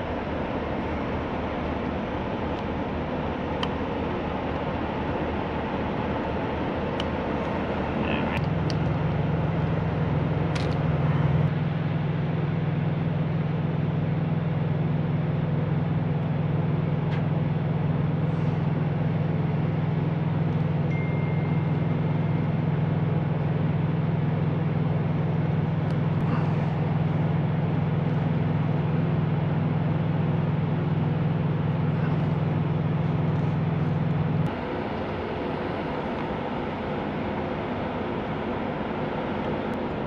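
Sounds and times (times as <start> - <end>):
deep steady drone: 0.0 - 40.0
truck engines idling: 0.0 - 40.0
clicks of pliers and wire connectors: 10.5 - 10.8.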